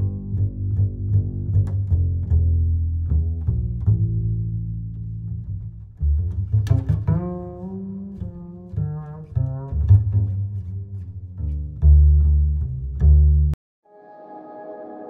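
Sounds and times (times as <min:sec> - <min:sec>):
deep sustained bass notes: 0:00.0 - 0:13.6
higher melody: 0:13.8 - 0:15.0.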